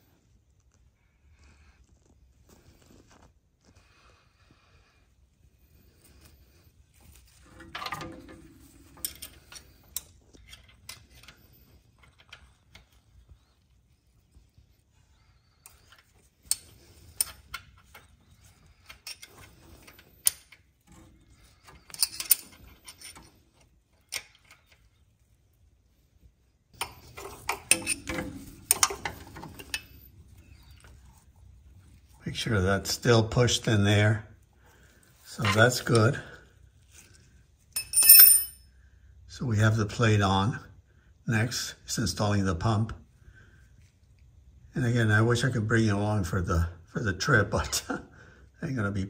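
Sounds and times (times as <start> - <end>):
metal hand tools clattering: 26.8 - 30.1.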